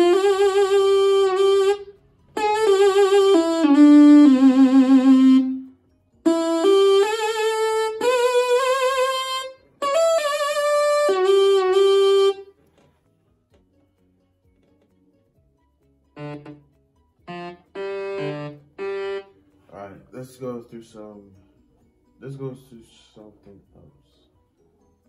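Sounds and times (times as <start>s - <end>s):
synth lead melody with vibrato: 0.0s - 12.5s, 16.2s - 16.6s, 17.2s - 19.6s.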